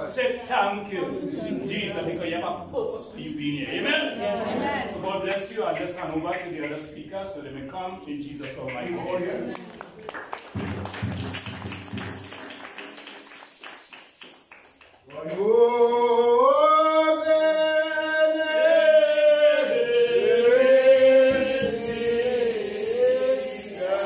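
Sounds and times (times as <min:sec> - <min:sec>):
person singing a slow hymn: 0:15.1 - 0:24.0.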